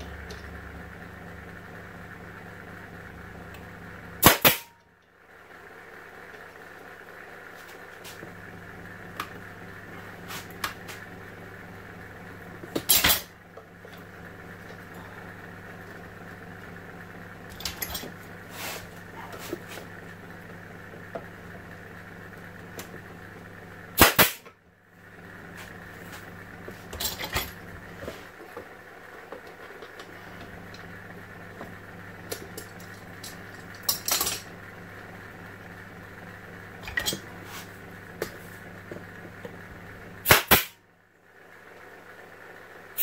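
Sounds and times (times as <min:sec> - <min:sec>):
low hum: 0:00.0 - 0:40.3
nail gun shots into plywood: 0:04.2 - 0:04.7, 0:24.0 - 0:24.5, 0:40.2 - 0:40.8.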